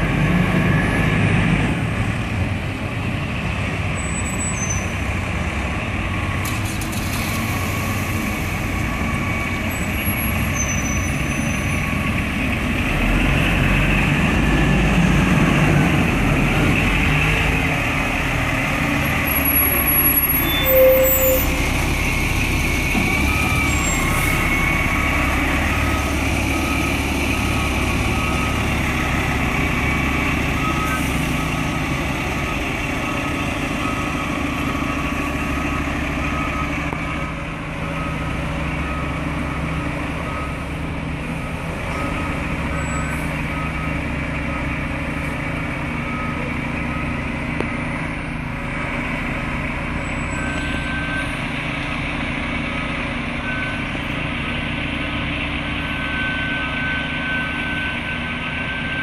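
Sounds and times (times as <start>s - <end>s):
brief loud tone: 20.4s - 21.8s
reverse alarm beeping: 20.4s - 21.8s.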